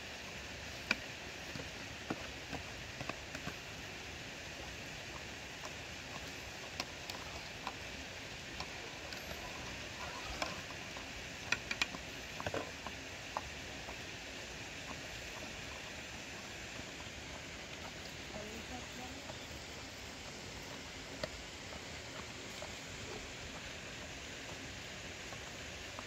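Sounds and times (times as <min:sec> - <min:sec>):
mountain stream rushing: 0:00.0 - 0:26.0
sharp clicks and knocks: 0:11.4 - 0:12.7.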